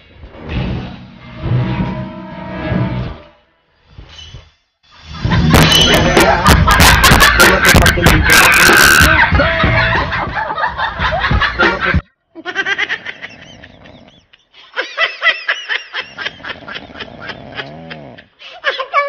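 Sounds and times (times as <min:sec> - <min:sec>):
person laughing: 0:05.2 - 0:19.0.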